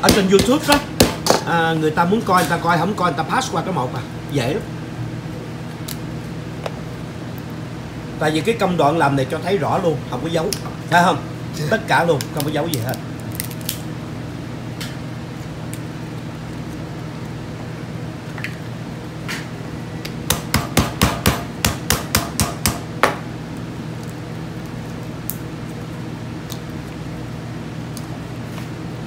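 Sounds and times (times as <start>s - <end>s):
cracking lobster shells: 12.1s - 13.9s, 23.9s - 27.0s.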